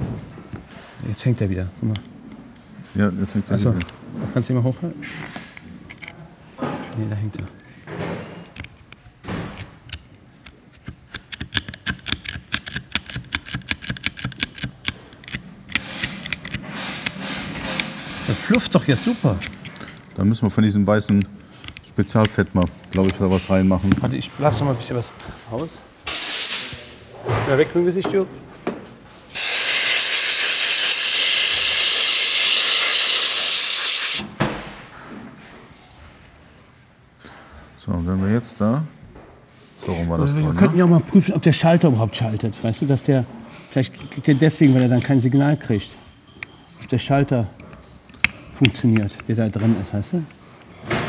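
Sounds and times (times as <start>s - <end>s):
steady hiss: 15.2s - 28.2s, 28.9s - 34.2s
aerosol spray hissing: 26.1s - 26.8s, 29.3s - 34.2s.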